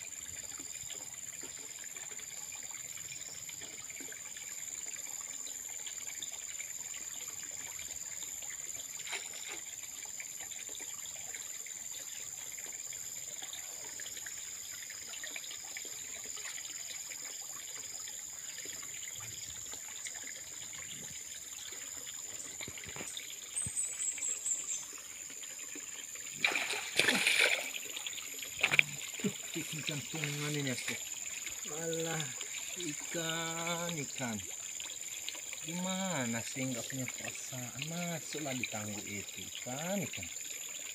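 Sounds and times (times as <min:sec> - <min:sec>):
water trickling and lapping: 0:00.0 - 0:40.9
loud water splash: 0:26.4 - 0:27.8.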